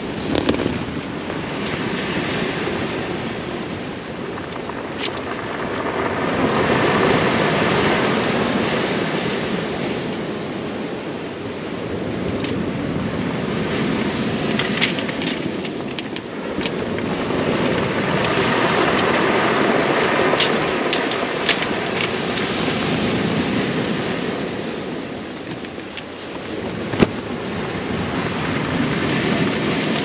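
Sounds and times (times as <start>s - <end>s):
pebbles clicking: 0.0s - 1.5s, 14.5s - 19.2s
waves breaking on shingle: 0.0s - 10.1s, 13.4s - 30.0s
wind on microphone: 0.0s - 30.0s.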